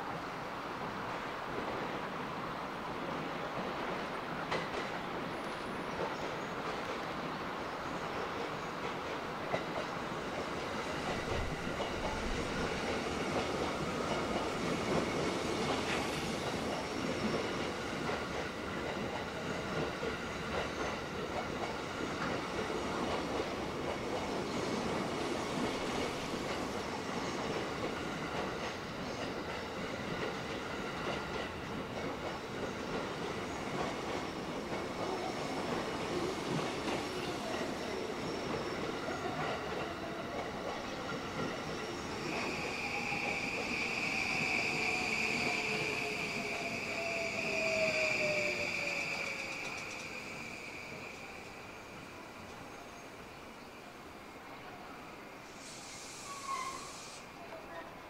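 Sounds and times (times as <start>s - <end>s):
train wheels clicking over rail joints: 47.7s - 50.3s.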